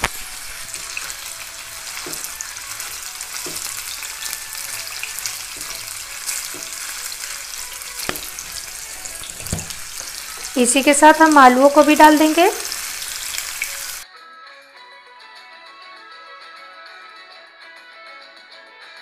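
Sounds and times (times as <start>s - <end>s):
vegetables sizzling in hot oil: 0.0s - 14.0s
spatula knocking against pan: 3.4s - 3.8s, 6.5s - 6.9s, 8.0s - 8.7s.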